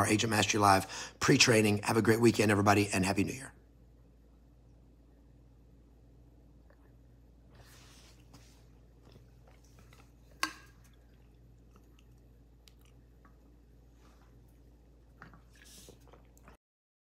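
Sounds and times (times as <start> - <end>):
person drinking: 14.2 - 16.6.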